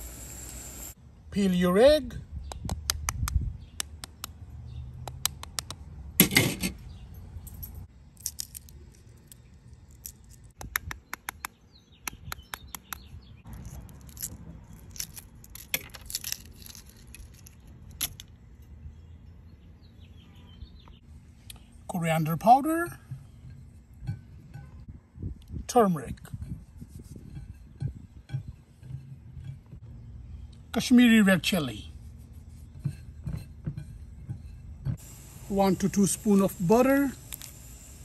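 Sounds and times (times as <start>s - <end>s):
egg shell crackling: 8.1s - 10.7s, 13.5s - 18.2s.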